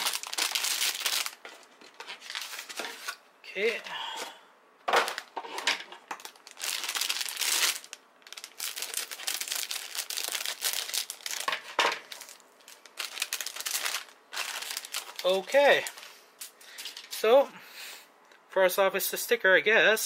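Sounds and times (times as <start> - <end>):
plastic bags crinkling: 0.0 - 3.8, 4.9 - 17.3.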